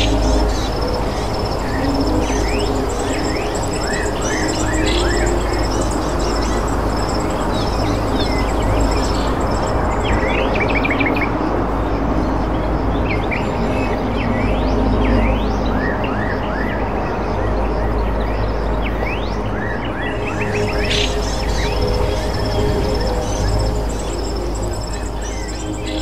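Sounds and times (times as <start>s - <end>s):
small birds chirping: 0.0s - 11.2s, 19.0s - 26.0s.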